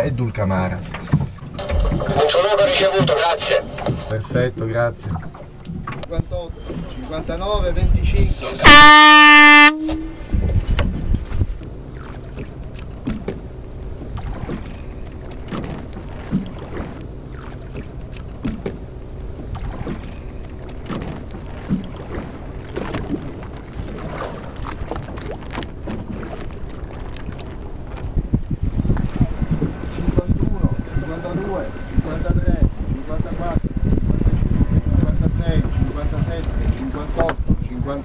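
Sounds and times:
water wash: 0:00.0 - 0:33.7
boat engine rumble: 0:00.0 - 0:38.0
wind on microphone: 0:05.1 - 0:11.8, 0:19.2 - 0:38.0.

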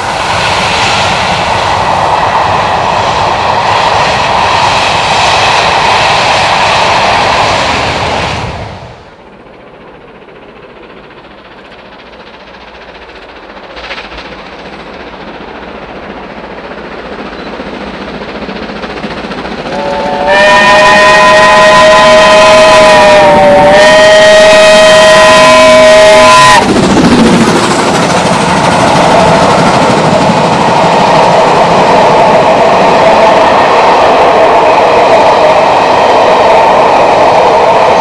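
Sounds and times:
steam locomotive running: 0:00.0 - 0:38.0
steam locomotive whistle: 0:19.6 - 0:26.7.

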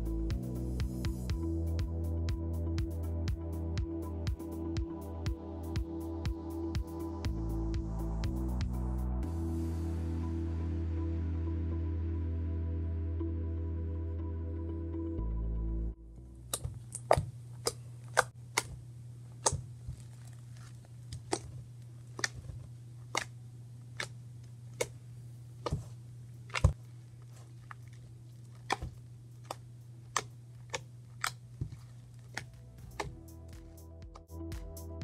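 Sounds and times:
background music: 0:00.0 - 0:16.6, 0:32.3 - 0:35.0
steady low hum: 0:00.0 - 0:35.0
slime clicking and popping: 0:19.4 - 0:20.0, 0:21.1 - 0:22.5, 0:23.1 - 0:24.2, 0:24.8 - 0:25.0, 0:27.6 - 0:33.2.

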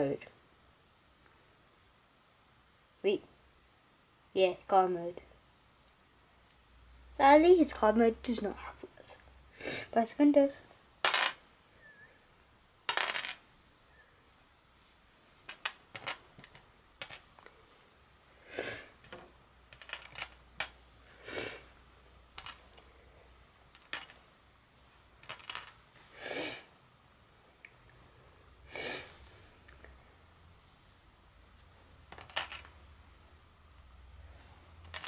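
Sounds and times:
plastic bricks rattling: 0:12.9 - 0:13.4, 0:15.5 - 0:17.4, 0:19.1 - 0:20.8, 0:22.4 - 0:22.6, 0:23.7 - 0:24.2, 0:25.2 - 0:25.8, 0:32.1 - 0:32.8
plastic bricks clicking: 0:15.5 - 0:17.5, 0:19.1 - 0:20.8, 0:22.4 - 0:22.6, 0:23.7 - 0:24.2, 0:25.2 - 0:25.8, 0:32.1 - 0:32.7.

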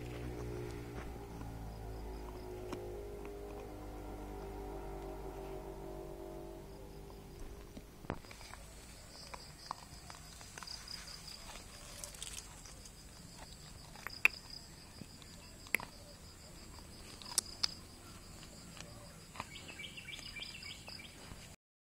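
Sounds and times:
insects chirping: 0:00.0 - 0:21.6
dog gnawing on a bone: 0:08.1 - 0:16.0, 0:16.7 - 0:19.6.

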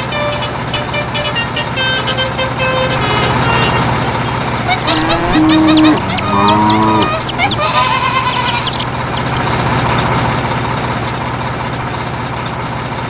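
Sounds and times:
low engine rumble with hum: 0:00.0 - 0:13.0
birds chirping: 0:03.7 - 0:10.1.

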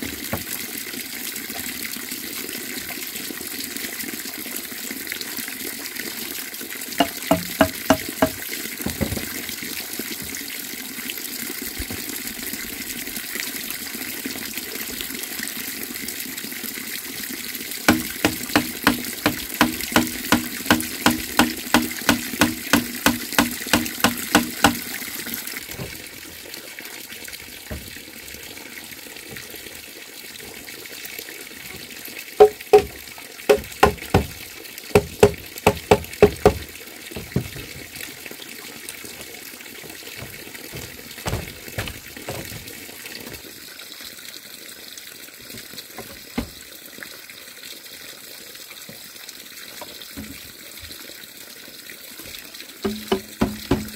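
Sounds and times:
running water rushing: 0:00.0 - 0:03.2, 0:06.8 - 0:15.3, 0:15.9 - 0:44.1, 0:45.3 - 0:47.2, 0:48.8 - 0:51.4, 0:52.0 - 0:53.9
ringing knocks on bamboo: 0:07.0 - 0:09.3, 0:17.9 - 0:24.8, 0:32.4 - 0:34.4, 0:35.0 - 0:36.6, 0:52.9 - 0:53.9.

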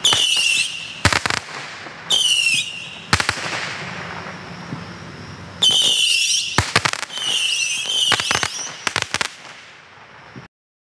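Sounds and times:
firework missiles whistling: 0:00.0 - 0:10.5
firework pops: 0:05.6 - 0:10.5.

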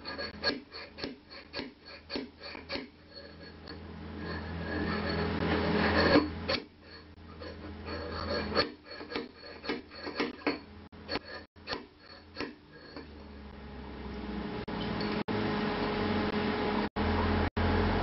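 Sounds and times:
steel tool scraping sheet metal: 0:00.0 - 0:13.6.

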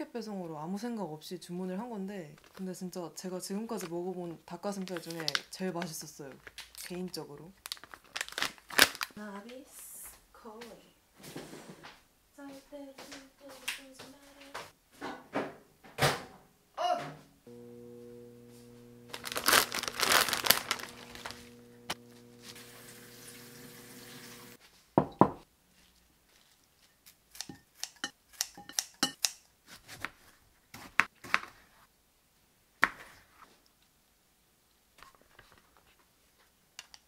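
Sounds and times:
plastic packaging crinkling: 0:02.4 - 0:02.7, 0:04.6 - 0:09.2, 0:19.0 - 0:23.3
electrical hum: 0:17.4 - 0:24.6.

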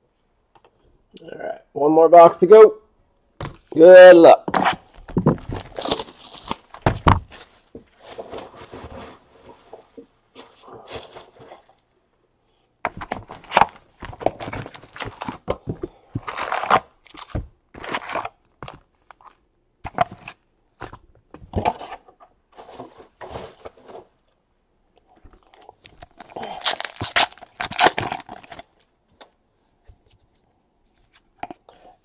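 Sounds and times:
wrappers crinkling and rustling: 0:05.0 - 0:09.6, 0:25.8 - 0:28.9.

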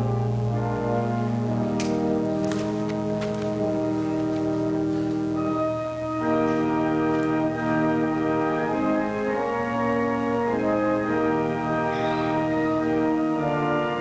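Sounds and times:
organ playing sustained chords: 0:00.0 - 0:14.0.

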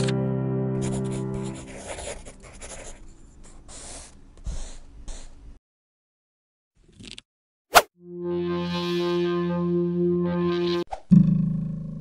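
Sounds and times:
pen scratching on paper: 0:00.8 - 0:05.4.

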